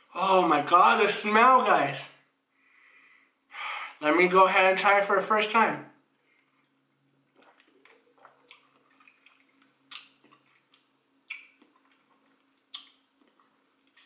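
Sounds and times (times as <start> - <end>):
person swallowing: 7.3 - 10.6
lip smacks: 7.3 - 14.0.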